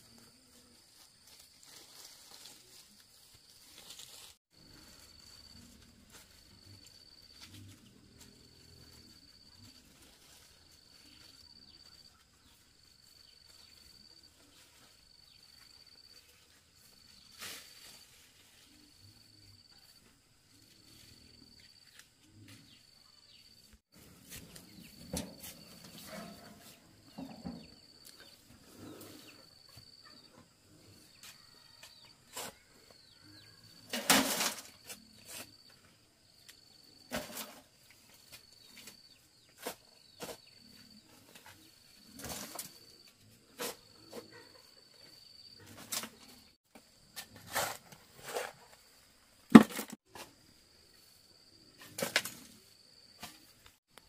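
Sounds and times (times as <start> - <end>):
soil tipped into metal wheelbarrow: 33.9 - 35.0, 37.1 - 37.7, 49.5 - 50.3
shovel digging soil: 47.1 - 48.8, 49.5 - 50.3.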